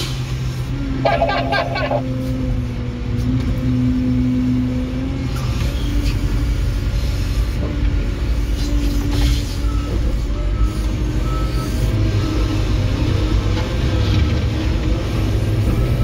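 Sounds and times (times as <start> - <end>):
diesel engine running: 0.9 - 3.1.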